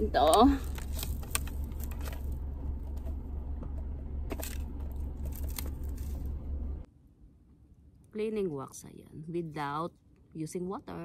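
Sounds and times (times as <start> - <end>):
car vacuum cleaner rumble: 0.0 - 6.9.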